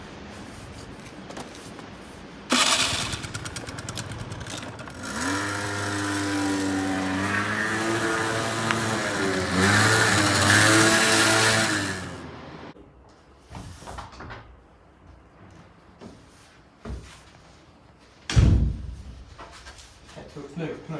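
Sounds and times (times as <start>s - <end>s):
scooter engine starting and revving: 2.5s - 12.8s.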